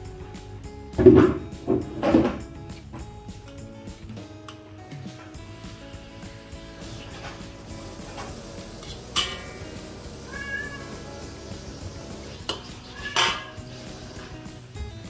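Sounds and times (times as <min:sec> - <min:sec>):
metal spatula scraping a wok: 0:06.8 - 0:10.4, 0:12.4 - 0:14.4.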